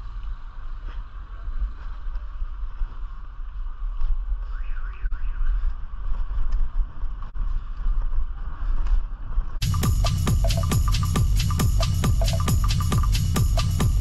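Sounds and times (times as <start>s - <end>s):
wind rumbling on microphone: 0.0s - 9.6s.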